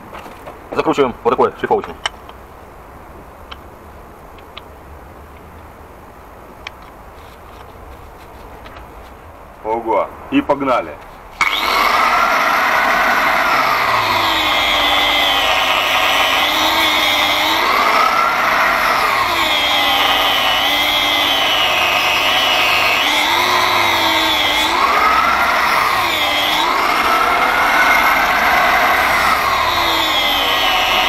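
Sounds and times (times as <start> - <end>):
angle grinder cutting rubber: 11.4 - 31.0.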